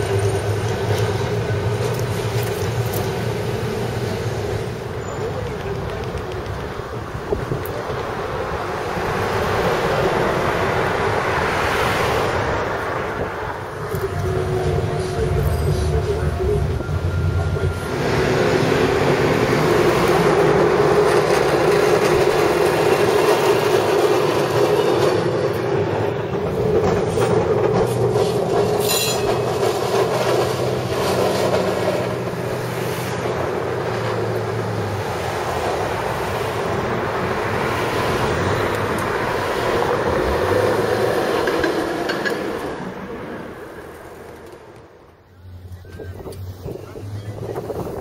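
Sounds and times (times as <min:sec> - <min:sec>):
passing car traffic: 0:00.0 - 0:48.0
streetcar humming and rumbling: 0:00.0 - 0:48.0
high-pitched squeal: 0:13.6 - 0:21.0, 0:28.0 - 0:33.2.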